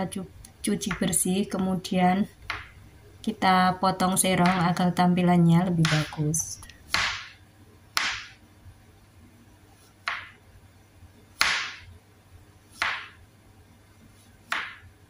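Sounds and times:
knife slicing carrot on board: 0:14.5 - 0:14.8.

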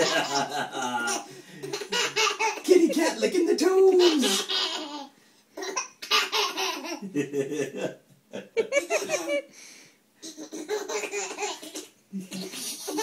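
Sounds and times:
baby giggling: 0:00.0 - 0:02.8, 0:03.9 - 0:07.1, 0:08.4 - 0:09.5, 0:10.2 - 0:13.0.

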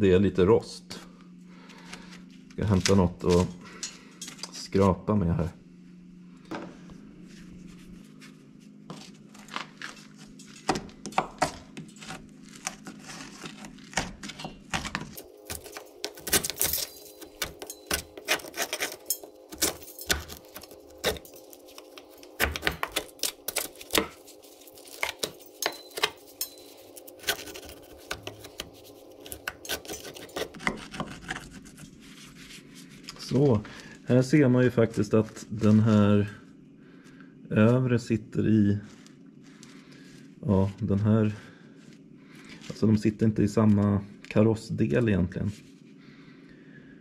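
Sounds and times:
scraper scraping rust on metal: 0:11.8 - 0:32.5.

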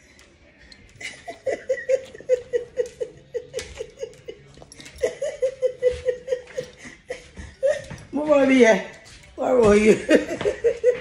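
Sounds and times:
woman laughing: 0:01.0 - 0:08.1, 0:09.9 - 0:11.0.

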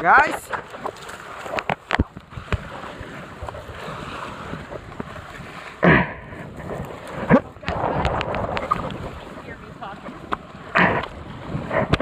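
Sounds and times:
waves washing: 0:00.0 - 0:12.0
wind buffeting microphone: 0:02.0 - 0:12.0.

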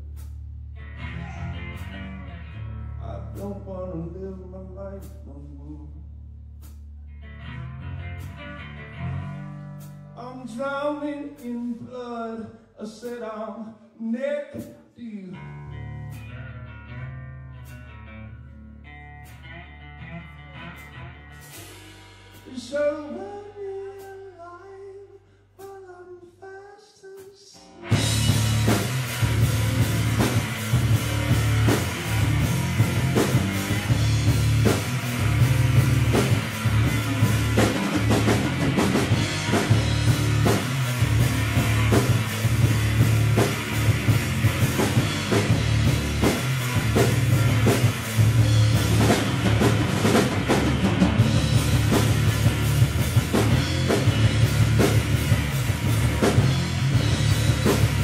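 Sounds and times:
electric guitar: 0:00.0 - 0:04.2, 0:07.0 - 0:10.8, 0:15.3 - 0:23.6, 0:27.6 - 0:58.0
bass guitar: 0:00.0 - 0:26.4, 0:27.4 - 0:58.0
drum kit kick and cymbal hits: 0:20.8 - 0:22.9, 0:27.8 - 0:58.0.

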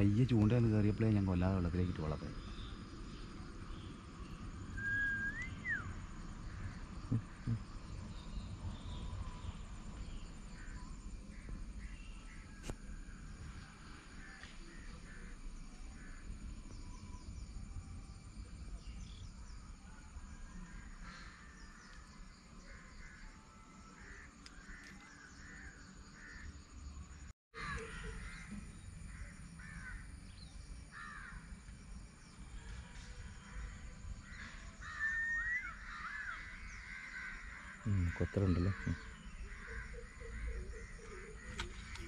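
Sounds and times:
bright rising bird call: 0:04.6 - 0:06.0, 0:34.8 - 0:36.8.

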